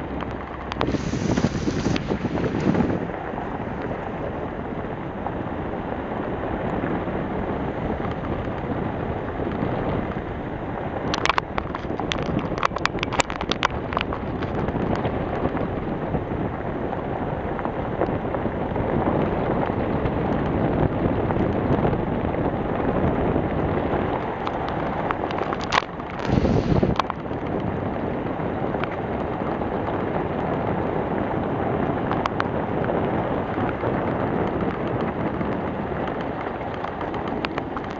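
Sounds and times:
tyres on gravel road: 0:00.0 - 0:19.6, 0:22.1 - 0:29.6
wind buffeting microphone: 0:00.0 - 0:37.9.

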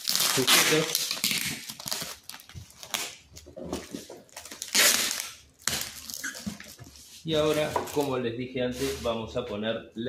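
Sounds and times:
packing tape pulled off roll: 0:00.0 - 0:03.3, 0:04.4 - 0:06.8
plastic bag crinkling: 0:00.0 - 0:08.1.

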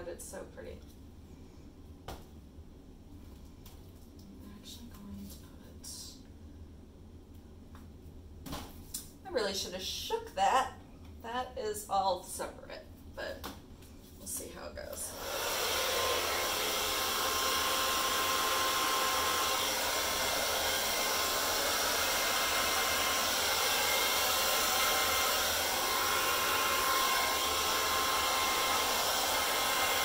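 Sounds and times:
hair dryer blowing: 0:14.4 - 0:30.0.

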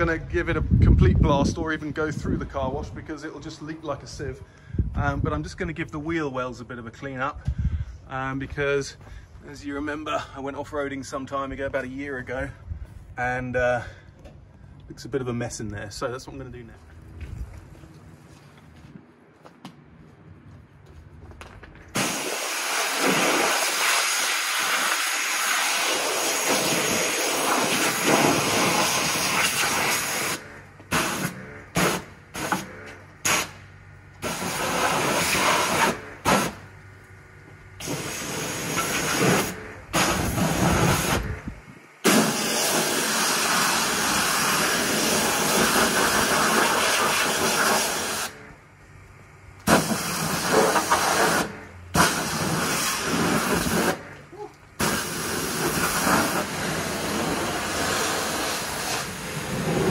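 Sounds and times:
pressure washer spraying water: 0:22.0 - 0:33.6, 0:34.2 - 0:36.6, 0:37.8 - 0:41.3, 0:42.0 - 0:48.4, 0:49.7 - 0:54.0, 0:54.8 - 0:59.9.

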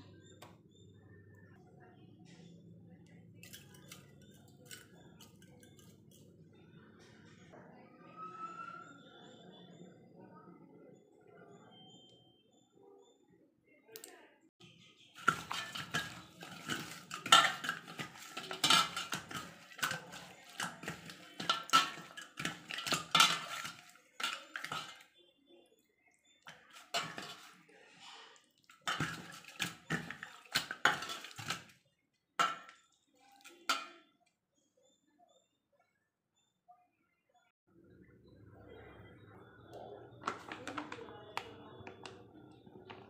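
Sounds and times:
fish scraping a metal bowl: 0:15.2 - 0:25.1, 0:26.5 - 0:27.8, 0:28.7 - 0:31.7.

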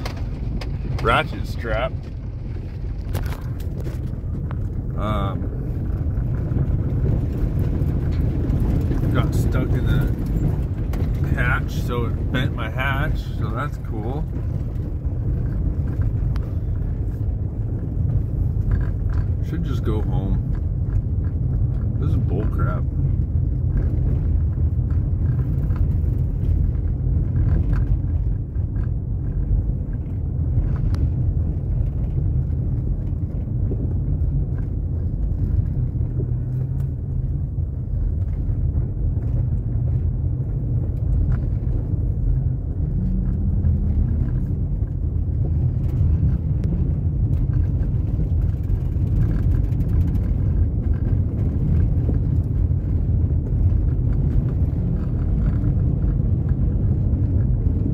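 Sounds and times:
road noise: 0:00.0 - 0:57.9
vehicle engine: 0:00.0 - 0:57.9.

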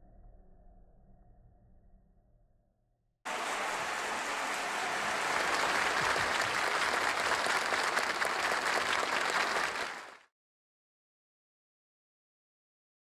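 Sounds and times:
audience applauding: 0:03.3 - 0:10.2.

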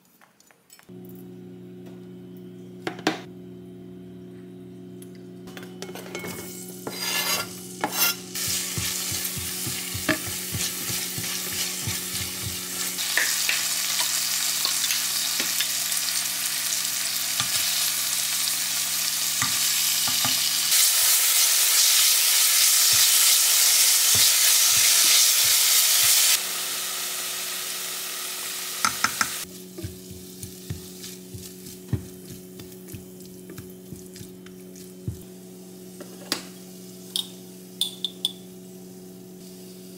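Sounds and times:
food sizzling in a hot pan: 0:06.5 - 0:32.3, 0:39.4 - 0:39.9
steady low hum: 0:29.4 - 0:39.9.

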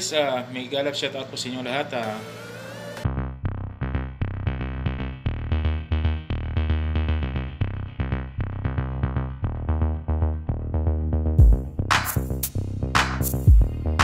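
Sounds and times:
music with quick beat: 0:11.4 - 0:14.0.

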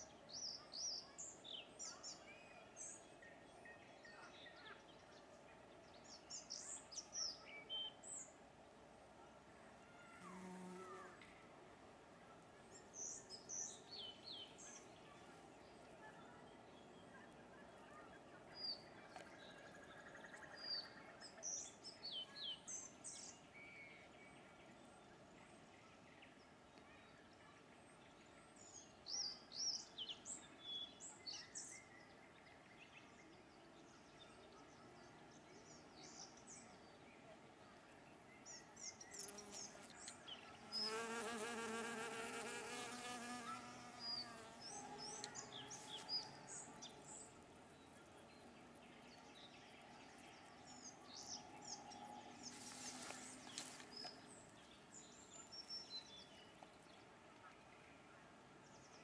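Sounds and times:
small birds chirping: 0:25.8 - 0:59.0
bee wings buzzing: 0:40.8 - 0:44.6.

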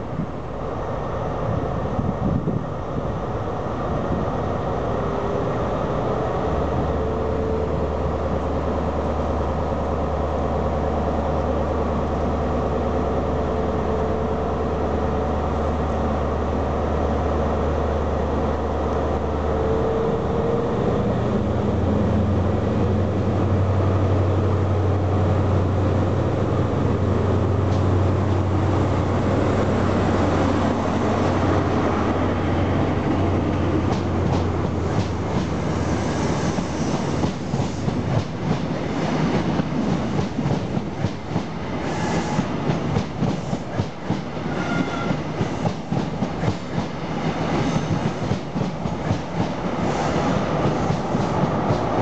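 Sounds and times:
diesel locomotive engine droning: 0:00.0 - 0:52.0
train wheels clicking over rail joints: 0:33.5 - 0:35.8, 0:45.1 - 0:52.0.

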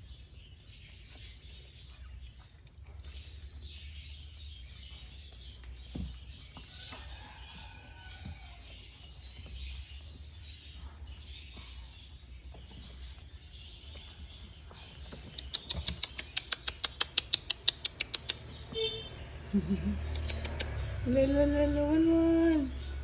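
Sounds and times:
puppies squeaking: 0:13.9 - 0:18.8.

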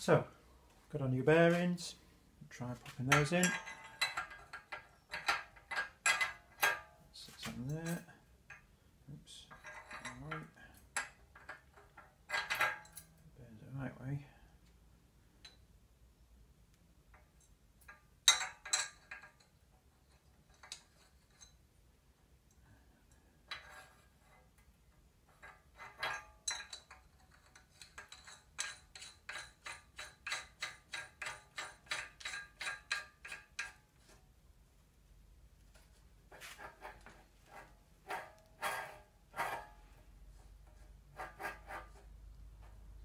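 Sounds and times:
metal parts clinking: 0:03.0 - 0:07.0, 0:09.5 - 0:13.2, 0:25.3 - 0:33.8.

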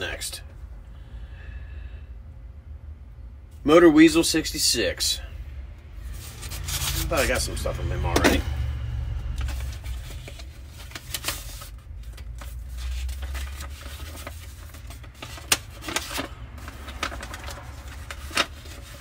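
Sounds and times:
paper rustling and crackling: 0:06.1 - 0:07.4, 0:09.4 - 0:19.0.

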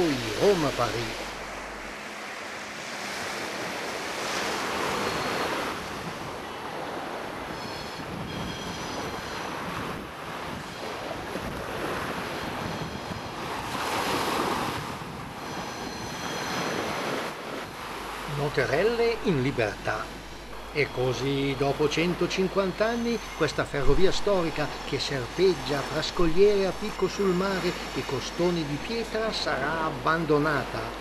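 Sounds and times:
faint high whine: 0:00.0 - 0:09.7, 0:15.4 - 0:31.0.

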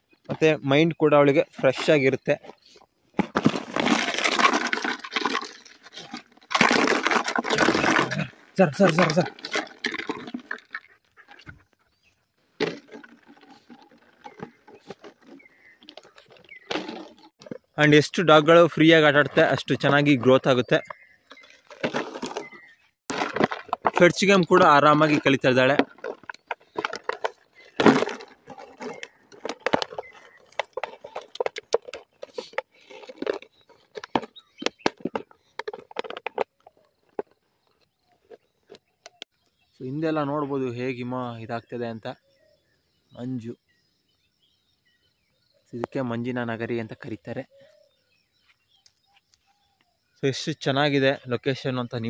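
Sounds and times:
puppy chewing plastic bottle: 0:25.8 - 0:37.4.

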